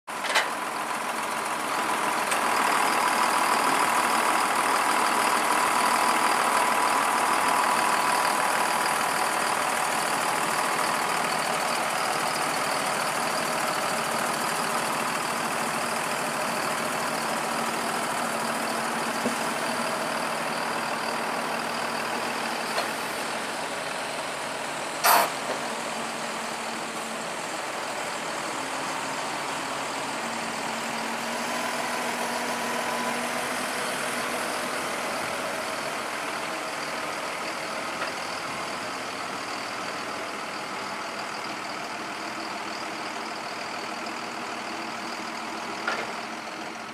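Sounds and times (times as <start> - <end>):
engine running: 0.1 - 46.9
short sharp burst of noise: 25.0 - 25.4.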